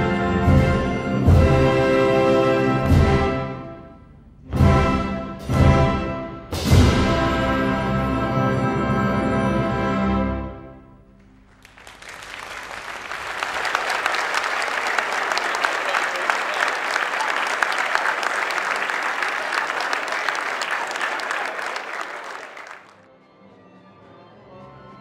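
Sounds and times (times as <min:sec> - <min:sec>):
audience applause: 0:11.4 - 0:23.0.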